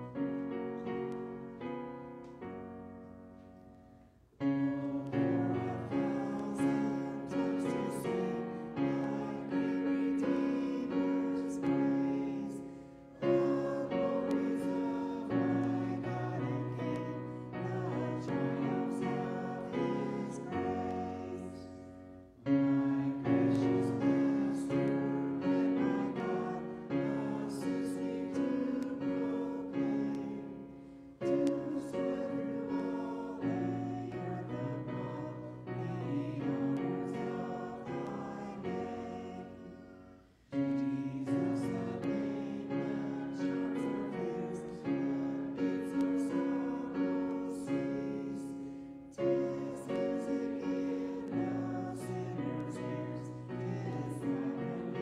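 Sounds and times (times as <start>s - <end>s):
congregation singing a hymn: 0.0s - 55.0s
piano accompaniment: 0.0s - 55.0s.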